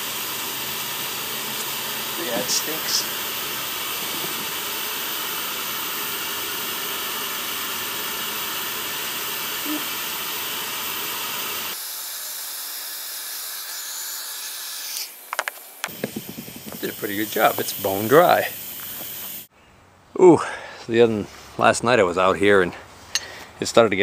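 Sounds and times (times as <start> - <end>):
heat gun hissing: 0.0 - 12.4, 14.7 - 19.5.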